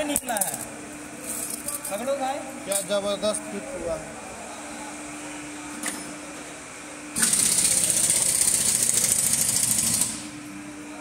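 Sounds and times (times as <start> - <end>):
power tool high rattle: 7.2 - 10.3.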